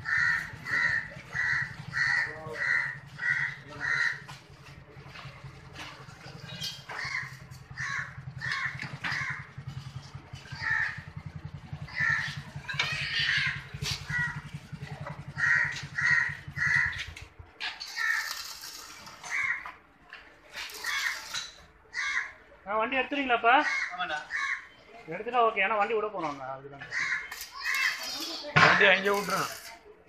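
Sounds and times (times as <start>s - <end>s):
birds calling: 0.0s - 19.8s, 20.6s - 22.6s, 23.3s - 25.5s, 26.8s - 29.6s
welding arc crackle: 17.8s - 19.5s, 20.6s - 21.6s, 27.3s - 29.8s.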